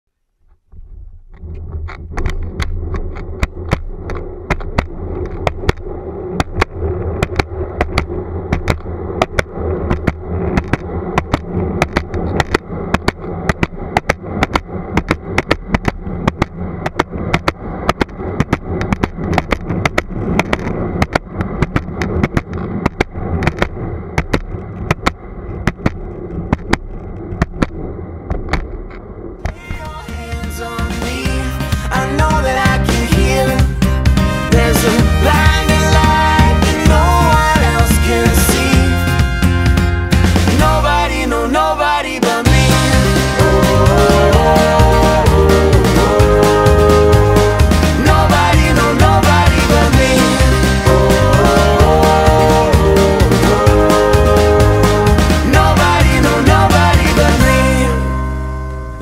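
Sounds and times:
skateboard wheels clacking over cracks: 0.5 - 29.7
skateboard wheels rumbling on pavement: 0.6 - 40.8.

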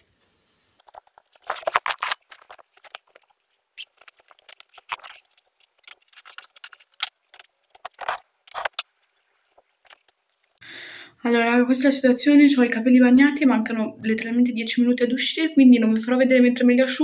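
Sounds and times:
small objects clicking and knocking: 0.8 - 10.6.

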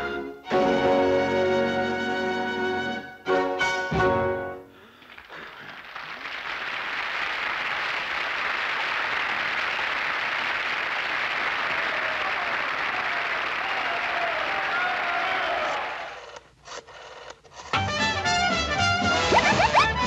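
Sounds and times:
audience applause: 4.8 - 16.4.

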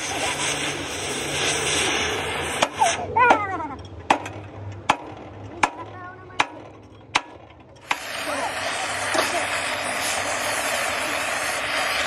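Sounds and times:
sledgehammer striking steel: 4.1 - 8.2.

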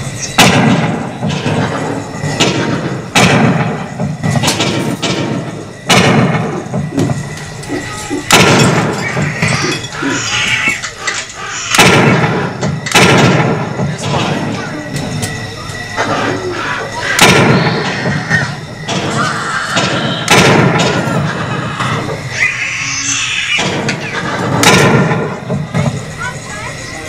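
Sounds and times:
shooting gallery bangs: 0.2 - 7.6, 8.2 - 9.7, 11.6 - 14.6, 17.0 - 22.3, 23.5 - 26.1.

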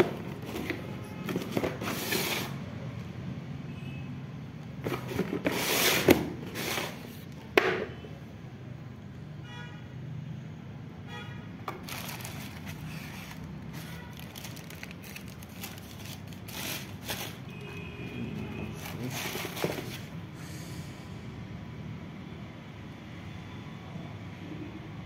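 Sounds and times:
plastic wrapping crinkling: 11.7 - 17.7, 18.4 - 20.1.

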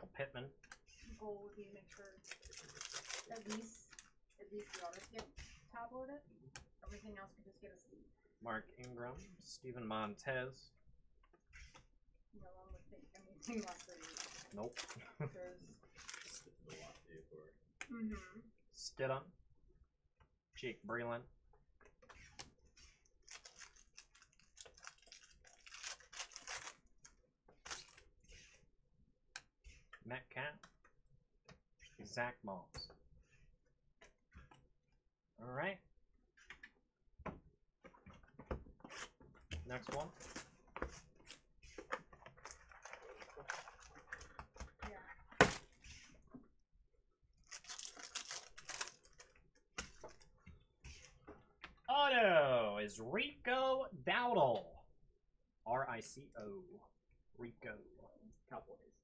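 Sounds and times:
foil wrapper crinkling: 2.0 - 4.1, 4.7 - 5.2, 13.4 - 15.3, 16.0 - 16.5, 23.3 - 26.9, 42.2 - 44.6, 47.4 - 50.3.

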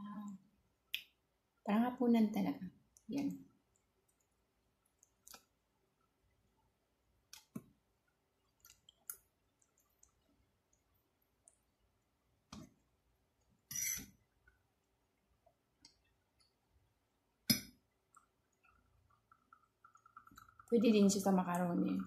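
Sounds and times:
fork scraping on plate: 13.7 - 14.1.

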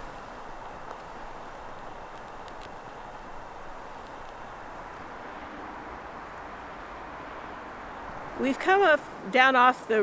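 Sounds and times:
outdoor background rush: 0.0 - 10.0.

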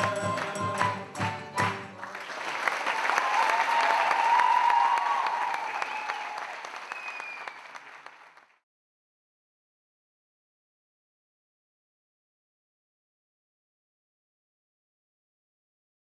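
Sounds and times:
strummed guitars and accordion: 0.0 - 2.0
audience applause: 0.8 - 8.6
crowd cheering: 1.6 - 8.6.

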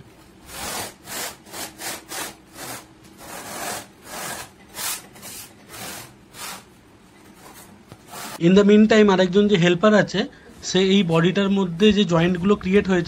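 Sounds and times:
rasping strokes on marble: 0.5 - 6.6.

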